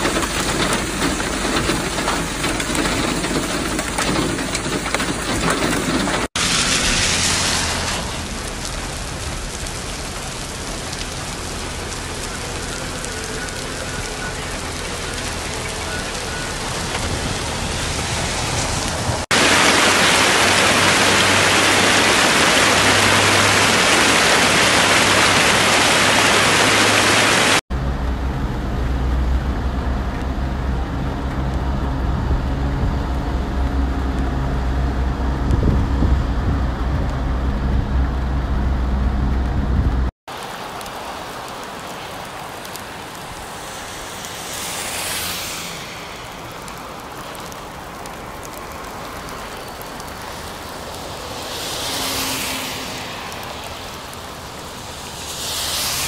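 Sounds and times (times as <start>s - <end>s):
rainwater pouring down rocks: 0.0s - 27.6s, 40.3s - 56.0s
heavy rain on wet road: 0.0s - 56.0s
low rumble: 27.7s - 40.1s.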